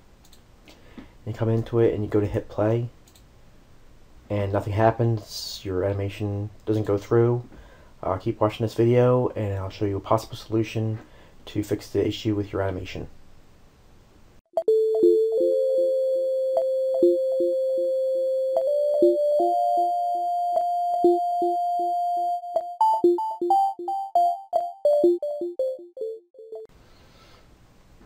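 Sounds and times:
synthesizer keyboard jingle: 14.6s - 26.7s.

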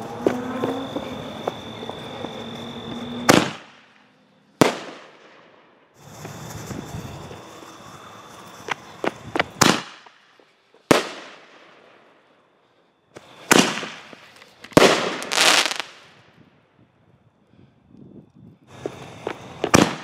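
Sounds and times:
fireworks loud bangs: 0.0s - 11.8s, 13.2s - 16.1s, 18.7s - 20.0s
fireworks crackling: 0.0s - 12.4s, 13.1s - 16.4s, 18.6s - 20.0s
fireworks pops: 3.2s - 4.0s, 6.0s - 11.4s, 13.1s - 16.1s, 18.7s - 20.0s.

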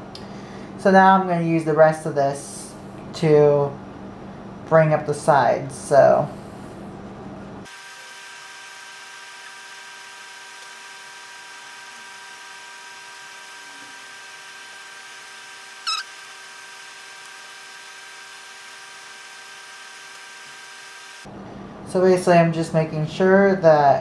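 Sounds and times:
electrical hum: 9.6s - 23.1s
short high squeak: 15.8s - 16.1s.

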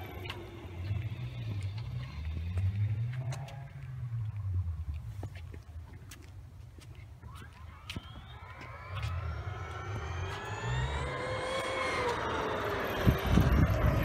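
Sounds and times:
electric motor whining: 7.2s - 14.0s
loud low rumble: 8.0s - 14.0s.

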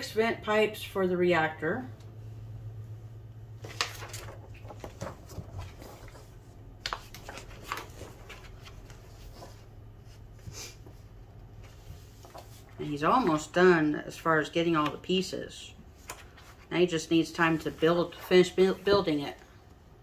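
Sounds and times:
steady low hum: 0.0s - 20.0s
magazine pages rustling: 3.6s - 11.0s, 11.6s - 13.6s, 16.0s - 19.4s.

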